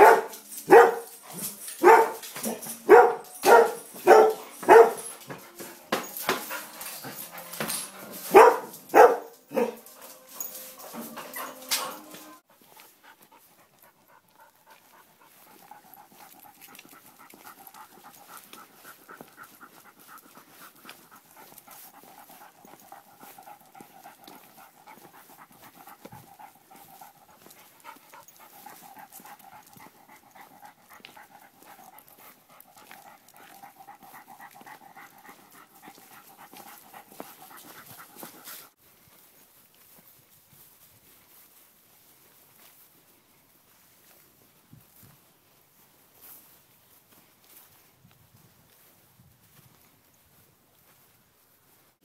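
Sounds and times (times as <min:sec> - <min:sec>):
dog panting: 0:00.0 - 0:38.8.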